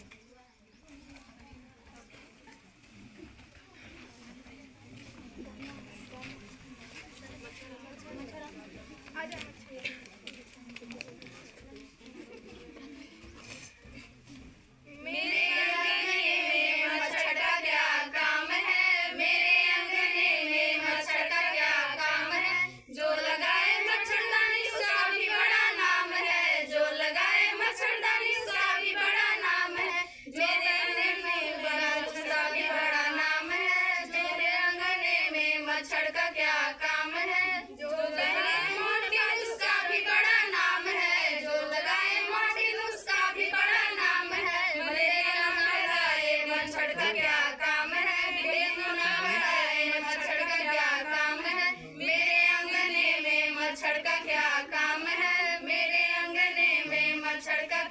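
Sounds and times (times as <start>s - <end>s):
women singing in chorus: 14.9s - 57.9s.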